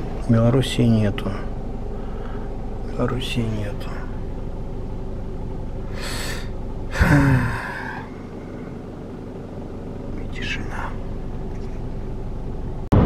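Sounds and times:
car cabin road and engine drone: 0:00.0 - 0:13.0
man sighing: 0:05.9 - 0:08.2.

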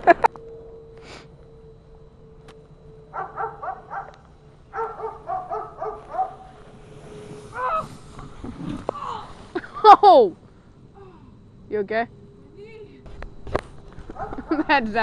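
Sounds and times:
dog barking: 0:03.1 - 0:06.5, 0:14.2 - 0:14.5.

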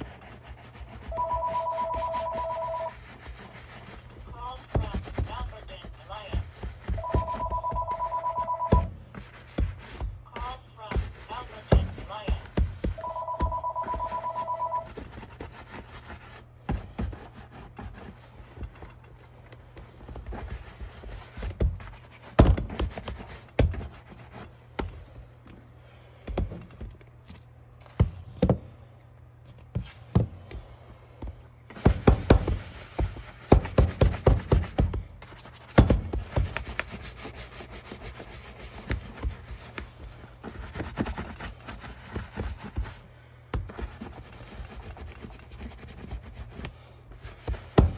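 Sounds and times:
bristle brush scrubbing leather: 0:00.0 - 0:18.5, 0:31.8 - 0:47.9.

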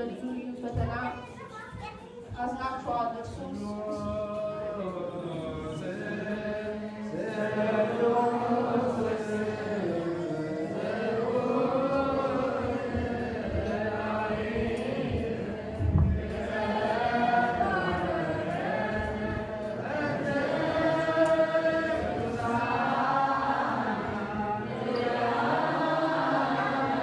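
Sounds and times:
voices chanting together: 0:02.4 - 0:27.0.

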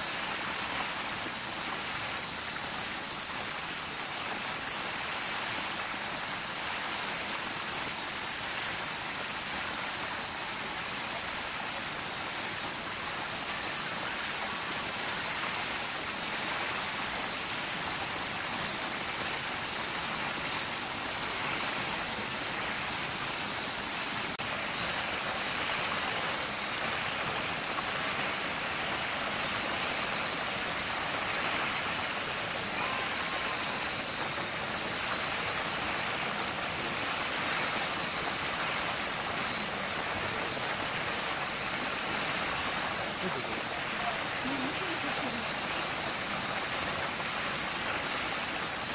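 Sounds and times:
cicada chorus drone: 0:00.0 - 0:48.9.

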